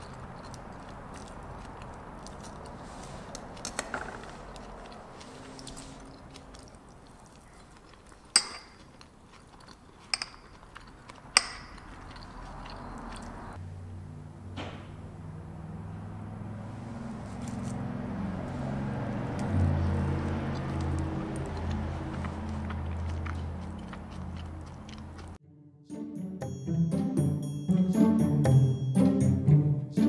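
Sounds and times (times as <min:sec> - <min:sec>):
quiet chewing: 0:00.0 - 0:13.6, 0:16.9 - 0:25.4
cutlery clinking on plate: 0:08.3 - 0:08.9
soft background music: 0:25.4 - 0:30.0.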